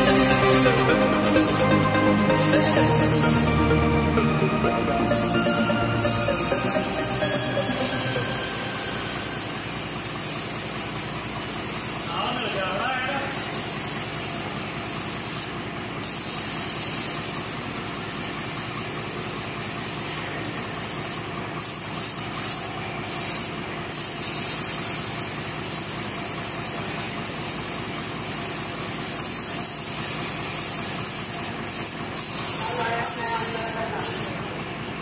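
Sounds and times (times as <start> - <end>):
paint spray gun hissing: 1.2 - 1.6, 13.4 - 18.9, 20.7 - 32.6.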